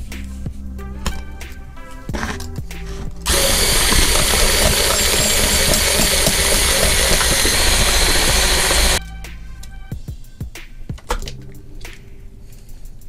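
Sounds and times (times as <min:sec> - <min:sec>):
electric mixer running: 0:03.3 - 0:09.0.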